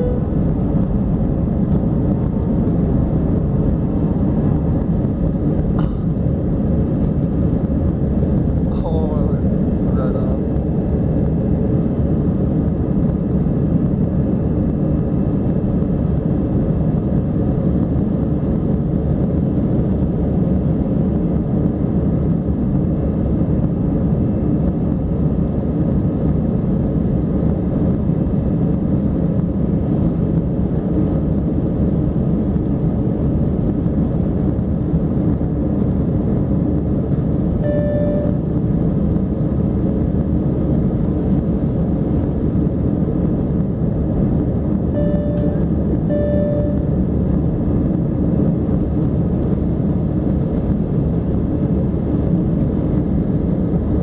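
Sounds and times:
clear tone: 0:00.0 - 0:00.5, 0:37.6 - 0:38.5, 0:44.9 - 0:47.0
jet cabin engine rumble: 0:00.0 - 0:54.0.

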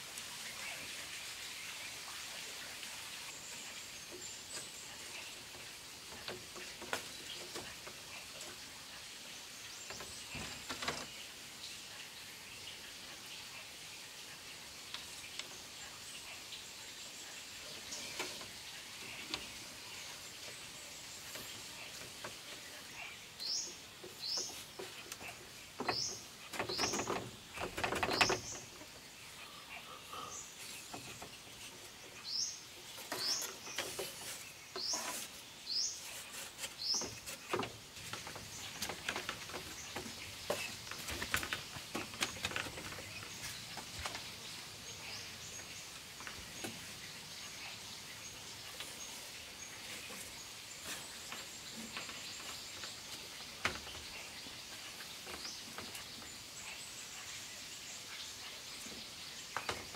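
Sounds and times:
bamboo slats knocking and scraping: 0:24.4 - 0:28.8, 0:36.0 - 0:44.2.

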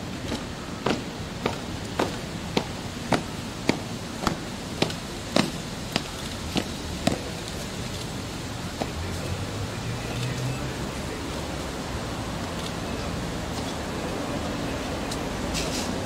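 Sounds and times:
dress shoes marching on stone: 0:00.2 - 0:09.3.

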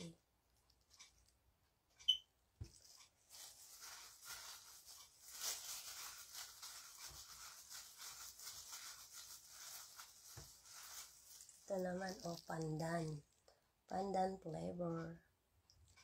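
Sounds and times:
plastic bag crinkling: 0:02.6 - 0:13.4.

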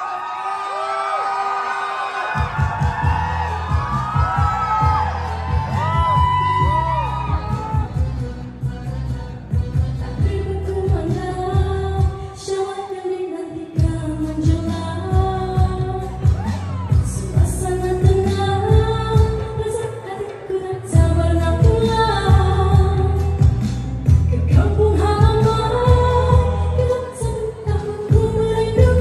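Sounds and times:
backing track with steady beat: 0:02.3 - 0:12.5, 0:13.7 - 0:29.0
woman singing into a microphone: 0:09.7 - 0:29.0.

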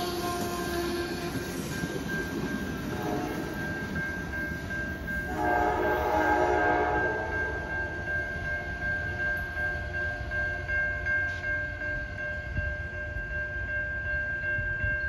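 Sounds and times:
train horn blast: 0:00.0 - 0:01.5, 0:02.9 - 0:03.6, 0:05.3 - 0:07.7
low rumble of train cars: 0:00.0 - 0:15.0.

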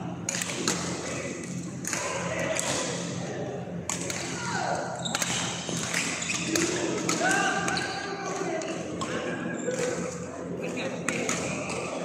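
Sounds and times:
shoe squeak on court: 0:05.0 - 0:06.9.

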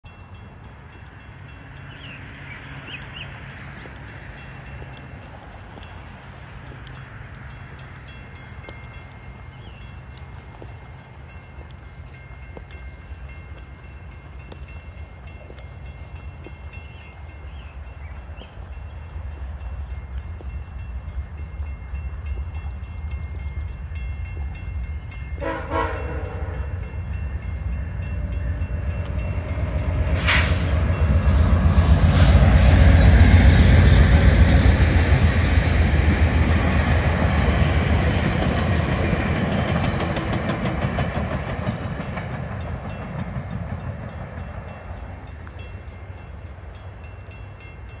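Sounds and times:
train rumbling past: 0:00.0 - 0:48.0
train horn blast: 0:25.4 - 0:27.1, 0:28.1 - 0:34.2.

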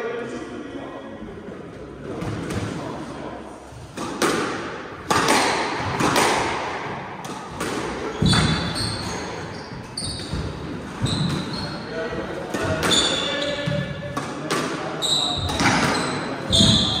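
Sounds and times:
shoes squeaking on wooden floor: 0:08.0 - 0:11.9.

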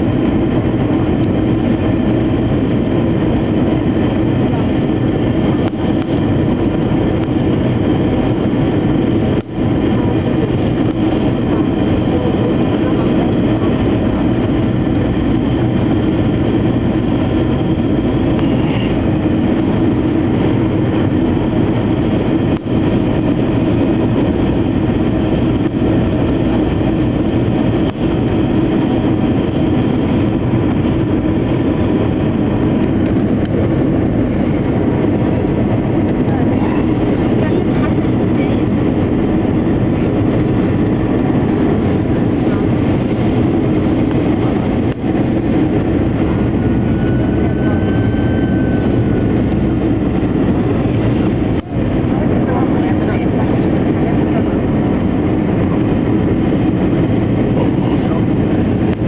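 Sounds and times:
airplane cabin engine noise: 0:00.0 - 0:59.0.

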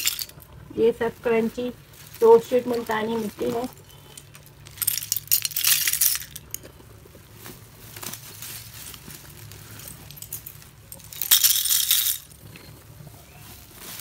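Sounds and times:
clay pieces clattering and clinking: 0:00.0 - 0:00.4, 0:02.7 - 0:06.8, 0:10.0 - 0:12.4.

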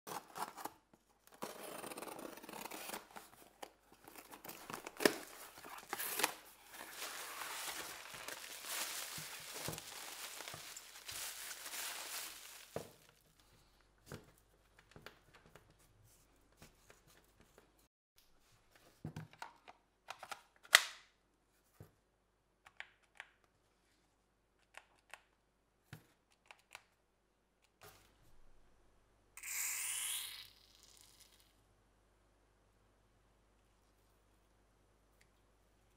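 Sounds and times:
handling rustling and scraping: 0:00.1 - 0:17.9.

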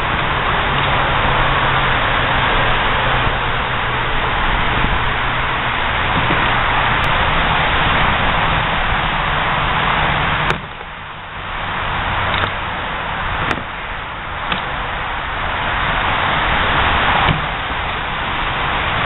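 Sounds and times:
steady rushing noise: 0:00.0 - 0:19.0
wooden swords knocking on shields: 0:10.5 - 0:10.7, 0:13.4 - 0:13.7.

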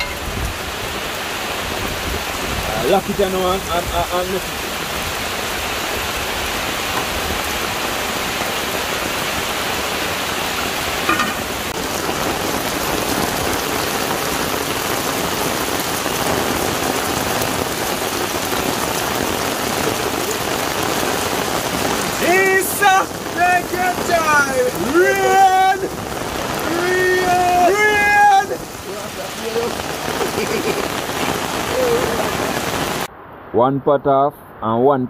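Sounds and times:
heavy rain hissing: 0:00.0 - 0:33.1
people talking: 0:02.6 - 0:04.5, 0:22.2 - 0:26.0, 0:26.6 - 0:30.8, 0:31.7 - 0:32.4, 0:33.6 - 0:35.0
people laughing: 0:30.0 - 0:31.3.

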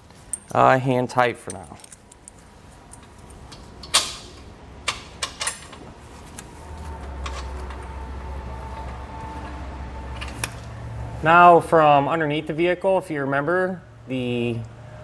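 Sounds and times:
low steady hum: 0:00.0 - 0:15.0
metallic clicks of bolt hardware: 0:01.4 - 0:05.8.

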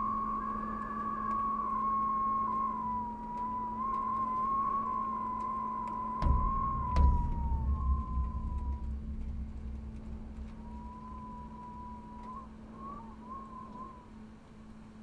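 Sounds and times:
wavering high tone: 0:00.0 - 0:14.0
deep rumble: 0:00.0 - 0:14.2
steady low hum: 0:00.0 - 0:15.0.

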